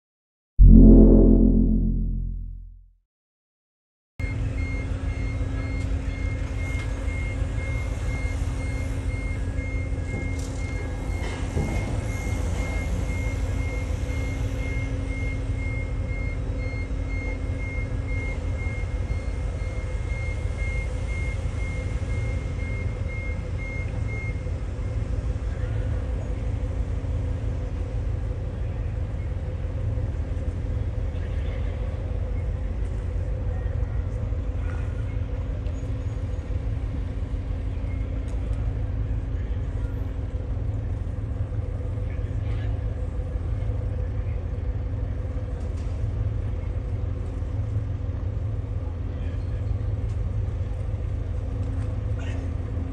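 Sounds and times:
low rumble and hum: 0.6 - 2.9.

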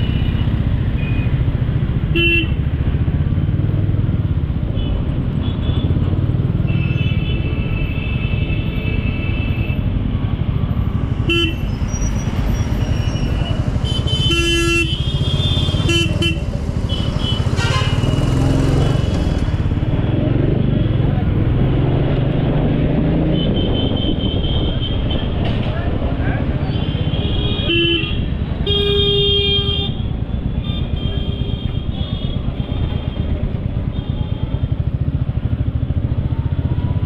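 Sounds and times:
road traffic rumble: 0.0 - 37.0
vehicle horn honks: 13.8 - 18.2.

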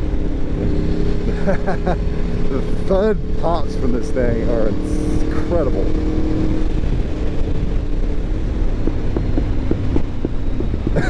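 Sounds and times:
motorcycle engine: 0.0 - 11.0
wind rush on microphone: 0.0 - 11.0
exhaust pops: 8.6 - 11.0.

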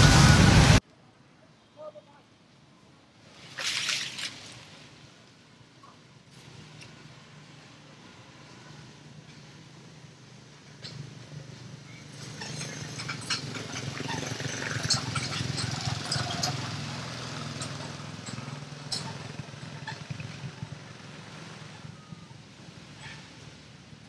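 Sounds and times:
monkeys squeaking calls: 12.0 - 16.8, 18.9 - 20.7.

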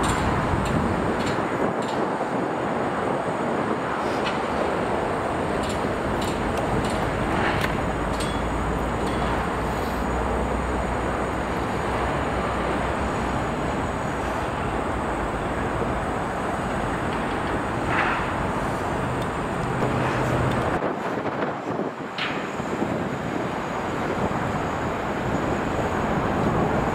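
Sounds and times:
road traffic noise: 0.0 - 26.9
low engine hum: 4.3 - 20.8.

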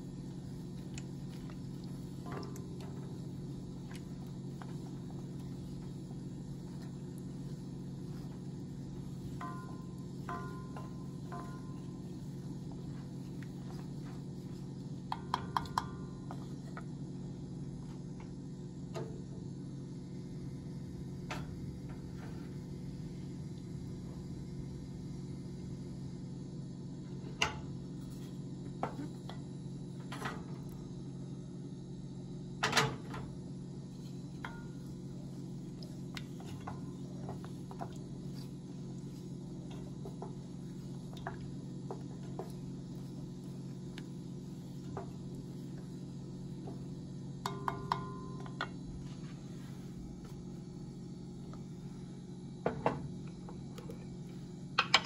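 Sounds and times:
steady low hum: 0.0 - 55.0
wooden spoon knocking on pan: 9.3 - 12.0, 47.4 - 48.7.

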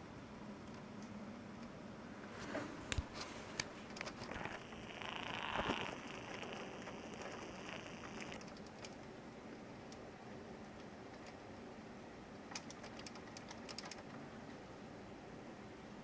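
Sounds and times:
sharp clicks: 3.9 - 9.0.

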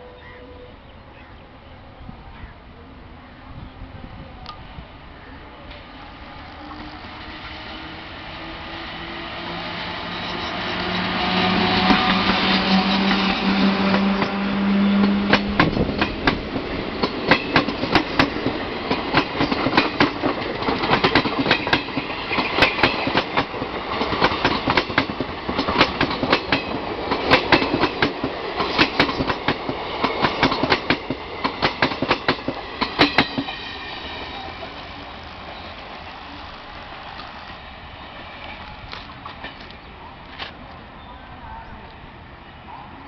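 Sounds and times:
electric locomotive hum: 0.0 - 43.0
train wheels clacking over rail joints: 10.3 - 33.6.

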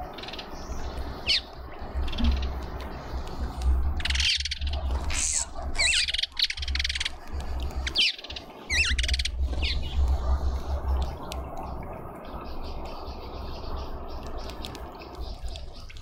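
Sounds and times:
small birds chirping: 0.0 - 16.0
buzzy bird trills: 7.8 - 10.9.

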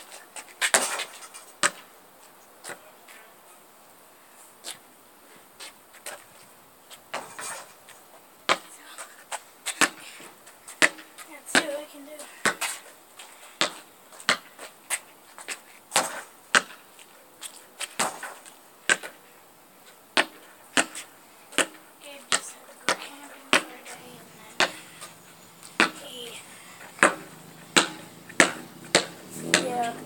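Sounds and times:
sharp knocks: 27.0 - 29.7.

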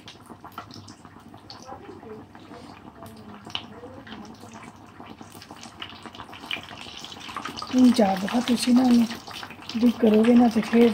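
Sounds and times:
fish deep-frying in oil: 0.0 - 10.9.

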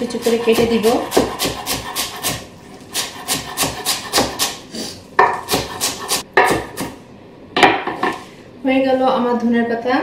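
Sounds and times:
knife chopping on wooden board: 0.1 - 2.4, 3.0 - 4.6, 5.2 - 7.0.

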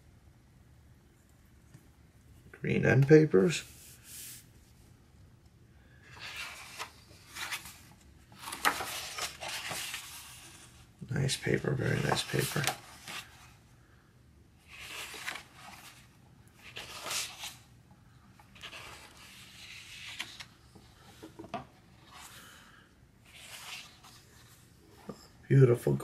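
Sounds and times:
book pages turning: 6.0 - 13.6, 14.6 - 17.7, 18.3 - 25.2.

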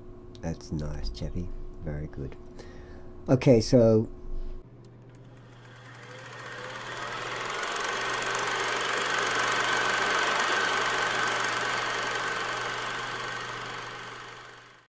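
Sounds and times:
thin steady whine: 0.0 - 14.9
low hum: 4.1 - 14.8
mechanical running noise: 4.6 - 14.9.

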